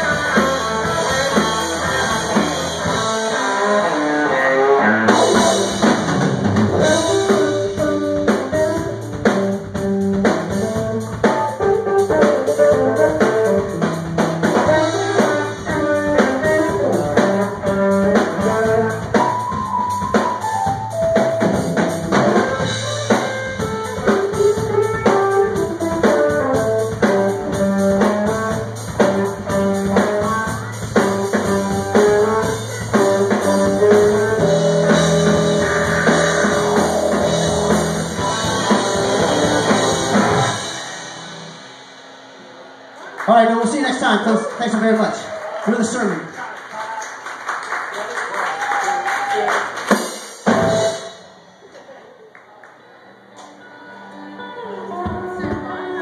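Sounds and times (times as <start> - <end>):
keyboard: 0.0 - 41.9
electric guitar: 0.0 - 43.3
drum kit: 0.0 - 44.2, 48.5 - 51.6
bass: 0.0 - 46.3, 50.4 - 51.3.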